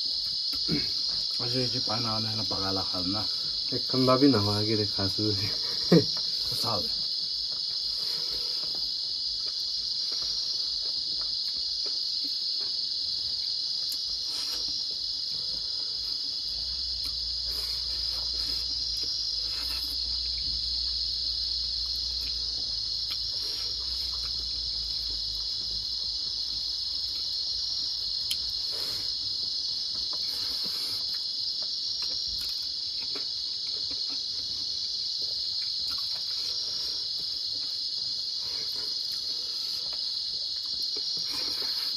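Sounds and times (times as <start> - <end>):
crickets chirping: 0.0 - 41.9
eating clicks and smacks: 31.0 - 34.5, 35.2 - 36.4.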